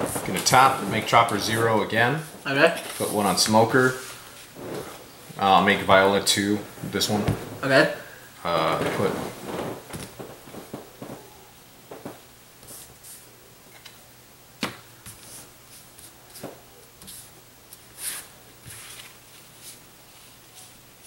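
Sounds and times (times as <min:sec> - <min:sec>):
cards rustling on cloth mat: 0:18.0 - 0:20.7.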